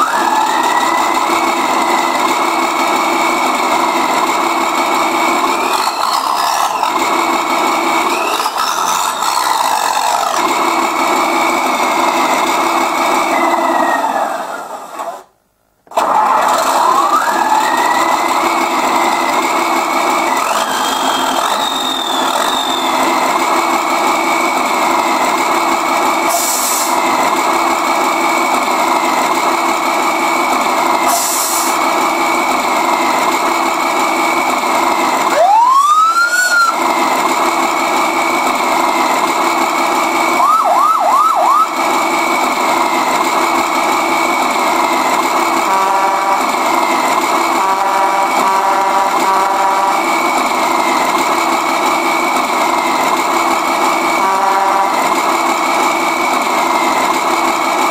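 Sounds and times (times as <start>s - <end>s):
simulated diesel engine through speaker: 0.0s - 57.9s
rising and falling whoop: 13.3s - 14.6s, 16.8s - 18.3s, 35.3s - 36.8s
air-brake hisses: 26.3s - 26.9s, 31.1s - 31.8s.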